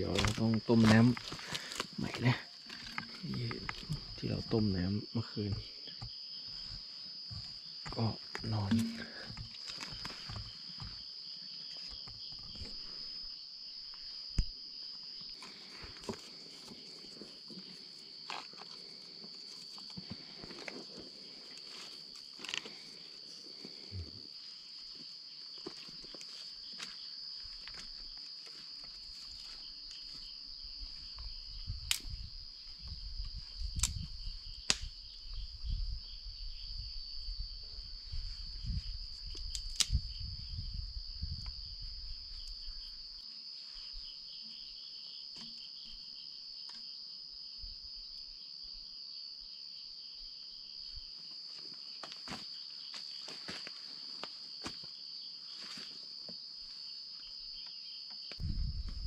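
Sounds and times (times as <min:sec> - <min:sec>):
insect chorus drone: 0:00.0 - 0:59.0
low rumbling: 0:58.4 - 0:59.0.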